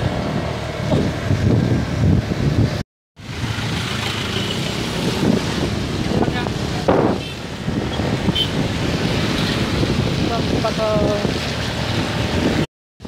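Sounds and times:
vehicle engine rumble: 0:00.0 - 0:12.7.

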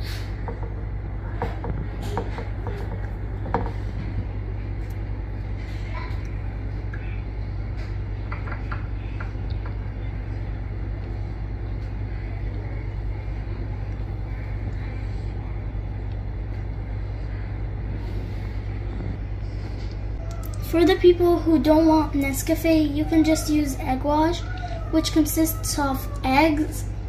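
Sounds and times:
low rumble: 0:00.0 - 0:20.6.

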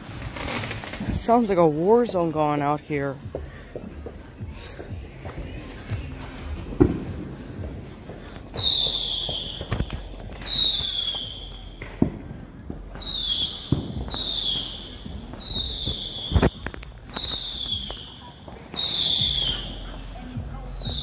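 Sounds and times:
high firework whistles: 0:06.3 - 0:12.3, 0:12.9 - 0:20.0, 0:20.7 - 0:21.0
firecracker bangs: 0:08.5 - 0:19.8.

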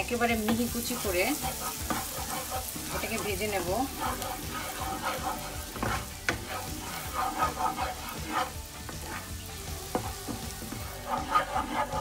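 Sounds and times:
garlic sizzling in butter: 0:00.0 - 0:12.0
spatula knocking against pan: 0:00.3 - 0:09.2, 0:09.9 - 0:12.0.

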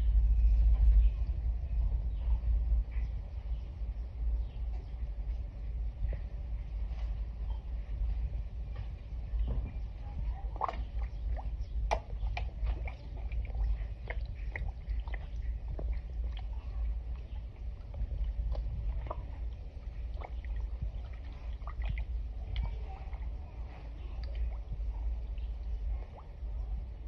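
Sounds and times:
low steady rumble: 0:00.0 - 0:27.0
pond water sloshing and gurgling: 0:09.4 - 0:27.0.

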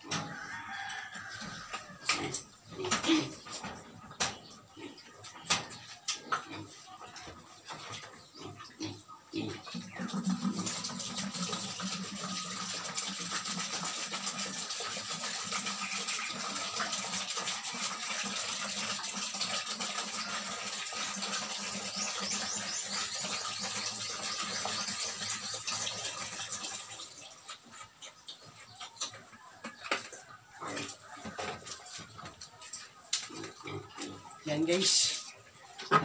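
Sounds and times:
water pouring into bucket: 0:09.8 - 0:27.5.

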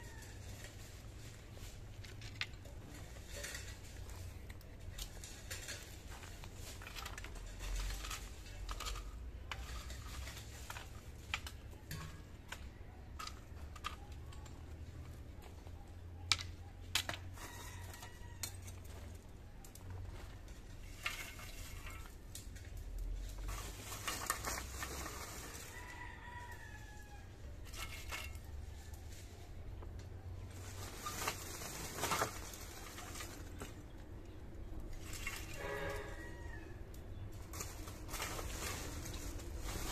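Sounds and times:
rooster crowing faintly: 0:00.0 - 0:00.9, 0:17.2 - 0:19.1, 0:24.9 - 0:27.7, 0:35.5 - 0:37.1.

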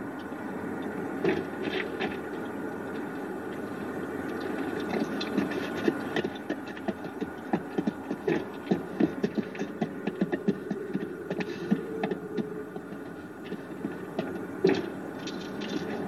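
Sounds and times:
horse hooves clopping on dirt: 0:00.2 - 0:16.0
footsteps: 0:04.4 - 0:16.0.

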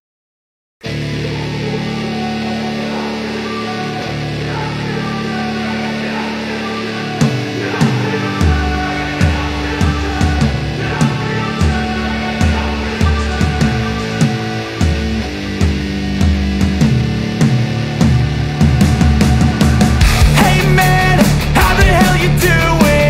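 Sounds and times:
held chords: 0:00.9 - 0:23.0
sharp beats: 0:07.2 - 0:23.0.

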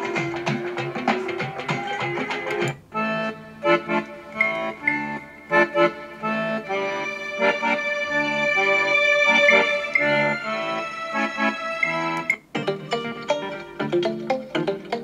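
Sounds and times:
quick percussive notes: 0:00.0 - 0:02.8
music with held chords: 0:00.0 - 0:15.0.

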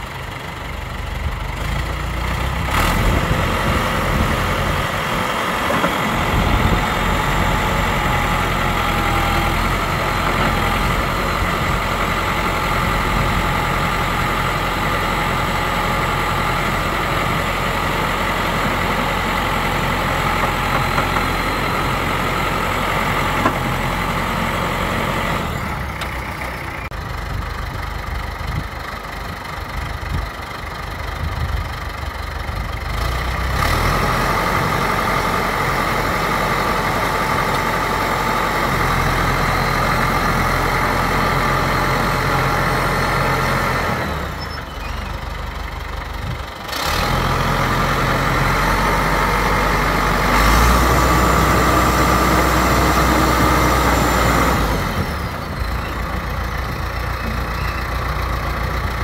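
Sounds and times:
bulldozer diesel engine running: 0:00.0 - 0:59.0.

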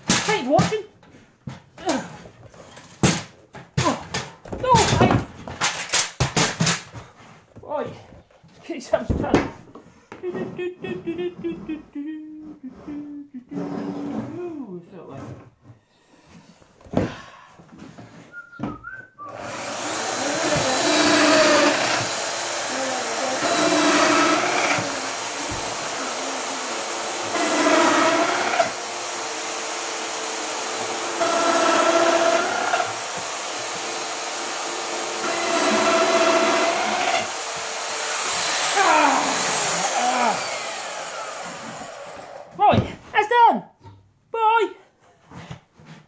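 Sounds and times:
whistling tone: 0:18.3 - 0:19.4.

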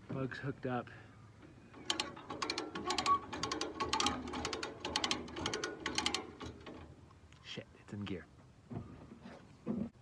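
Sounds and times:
winch ratchet clicking: 0:01.7 - 0:06.9.

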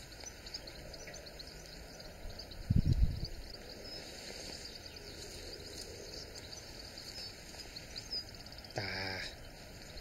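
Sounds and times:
small birds chirping: 0:00.0 - 0:10.0
wind noise: 0:02.0 - 0:07.7
livestock call: 0:08.2 - 0:09.4.

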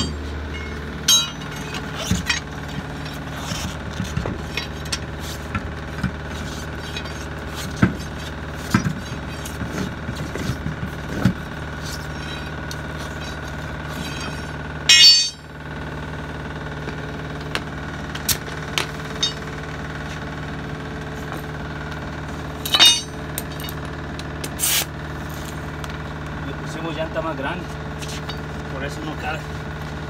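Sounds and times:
metal knocks and clinks from tools: 0:00.0 - 0:05.0, 0:14.0 - 0:15.5, 0:18.8 - 0:19.5, 0:22.6 - 0:23.9
engine running steadily: 0:00.0 - 0:30.0.

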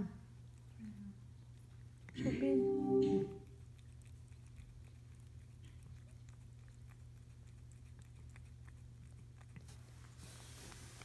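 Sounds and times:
steady low hum: 0:00.0 - 0:11.0
faint clicks and rustles from kittens: 0:00.4 - 0:02.2, 0:03.5 - 0:11.0.

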